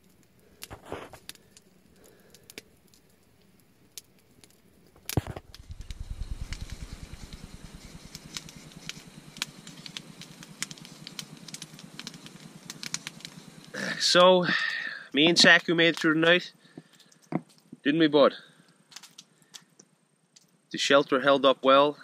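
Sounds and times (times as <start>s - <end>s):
campfire crackling: 0.0s - 22.0s
low rumble: 5.0s - 13.9s.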